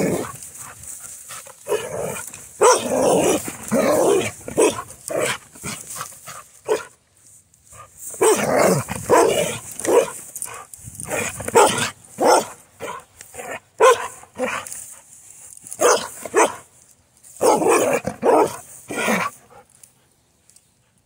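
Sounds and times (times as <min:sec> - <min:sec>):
dog barking: 0:02.6 - 0:03.4, 0:04.6 - 0:05.3, 0:06.7 - 0:06.9, 0:08.2 - 0:08.4, 0:09.1 - 0:10.2, 0:11.2 - 0:13.0, 0:13.8 - 0:14.2, 0:15.8 - 0:16.6, 0:17.4 - 0:19.3.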